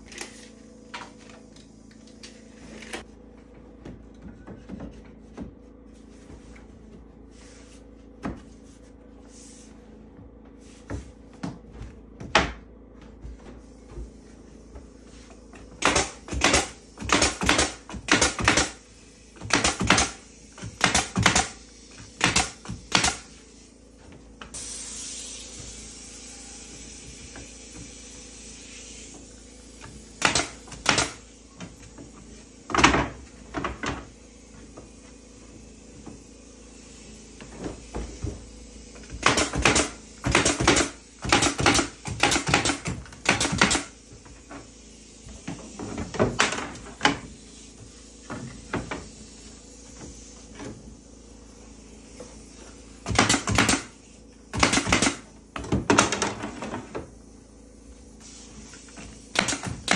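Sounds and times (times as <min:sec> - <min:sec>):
pneumatic nailer shots into wood: 0:15.8 - 0:23.4, 0:30.0 - 0:31.3, 0:38.9 - 0:44.1, 0:53.0 - 0:56.8, 0:58.2 - 0:59.9.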